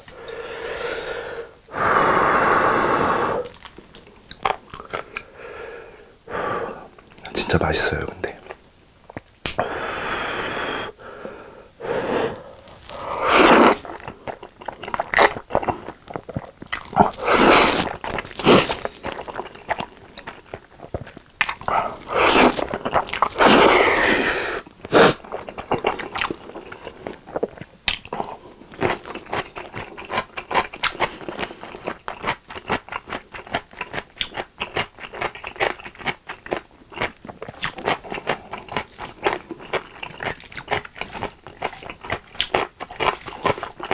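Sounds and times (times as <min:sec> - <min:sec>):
wet chewing with mouth clicks: 0:03.4 - 0:06.1, 0:08.4 - 0:09.6, 0:12.5 - 0:43.9
slurping noodles: 0:11.9 - 0:19.7, 0:21.6 - 0:27.5.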